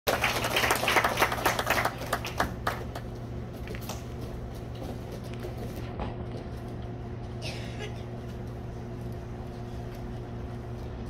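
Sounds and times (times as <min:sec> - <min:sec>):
small group applauding: 0:00.1 - 0:03.1
low steady hum: 0:00.1 - 0:11.0.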